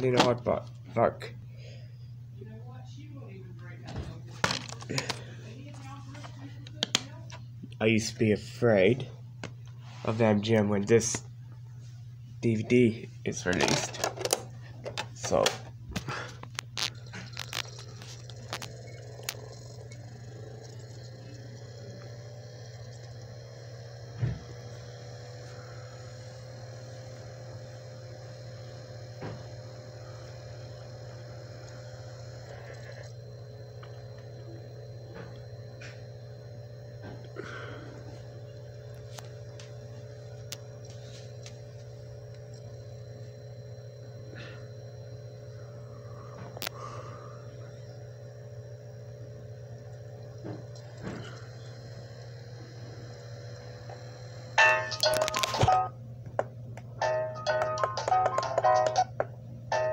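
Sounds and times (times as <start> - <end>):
steady low hum: 0.0 - 59.9
disc spinning up whir: 2.2 - 11.4, 12.4 - 59.9
disc player clicks: 54.6 - 59.9.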